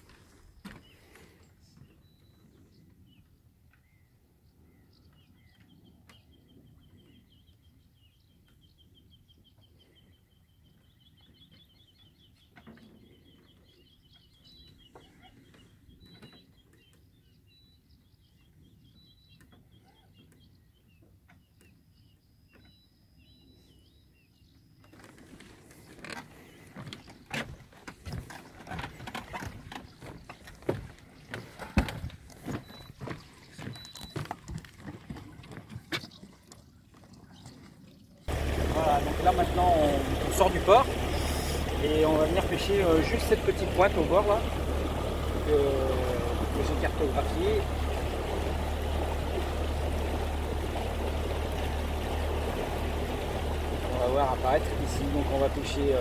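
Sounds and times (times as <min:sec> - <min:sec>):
faint birdsong: 0:00.0 - 0:56.0
low rumbling: 0:38.3 - 0:56.0.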